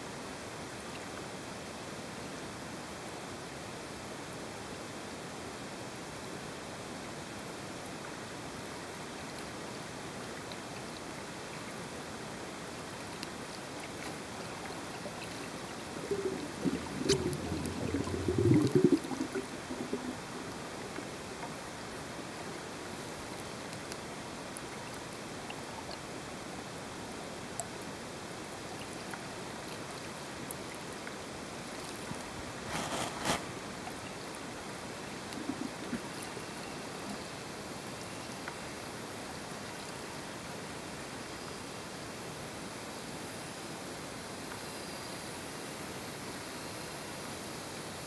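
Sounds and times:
underwater ambience hiss: 8.4 - 48.0
short loud rustle: 32.6 - 33.5.

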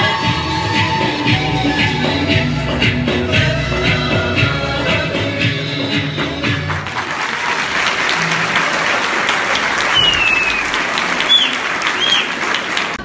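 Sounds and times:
music: 0.0 - 8.5
audience applauding: 6.2 - 13.0
high whistles from crowd: 9.8 - 12.9.

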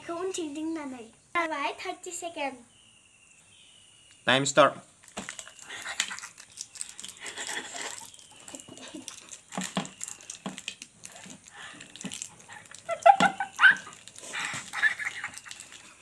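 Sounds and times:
wrapper rustling: 5.0 - 16.0
children breathing and snuffling: 11.0 - 12.9, 13.8 - 16.0.

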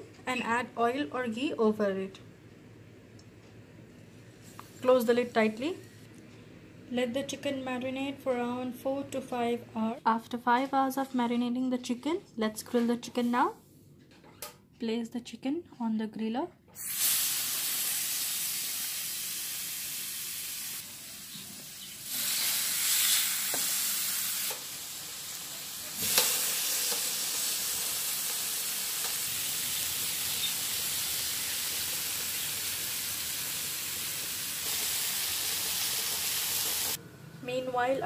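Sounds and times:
chicken sizzling on a grill: 16.9 - 37.0.

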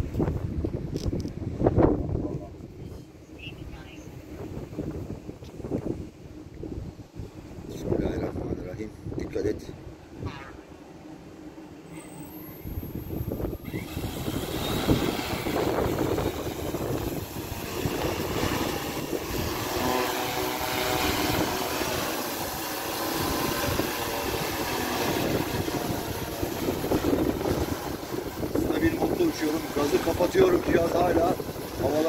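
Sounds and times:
drone propellers spinning: 10.1 - 32.0.

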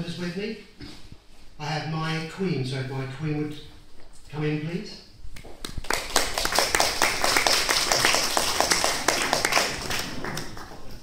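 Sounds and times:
audience applauding: 5.7 - 11.0.

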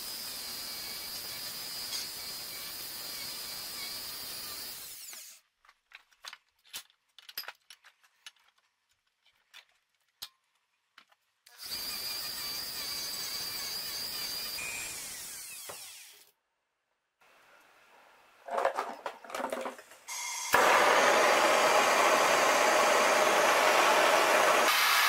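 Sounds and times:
power tool whining: 11.5 - 16.3, 20.1 - 25.0.

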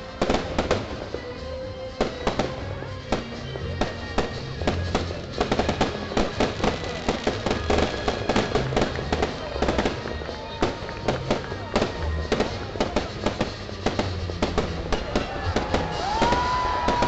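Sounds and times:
fireworks crackling pops: 0.0 - 17.0.

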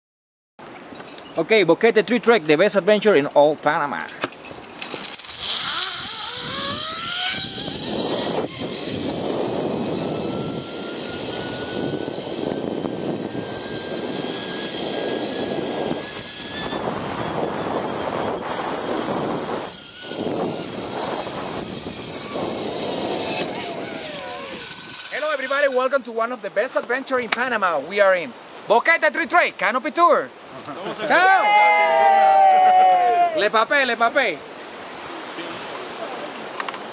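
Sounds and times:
zip-line pulley whine: 4.8 - 25.6
wind on microphone: 4.9 - 25.1.

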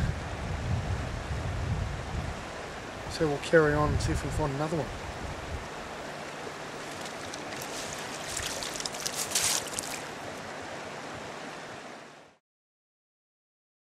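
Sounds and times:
river water running: 2.0 - 12.4
crackling and rustling: 6.7 - 10.4.

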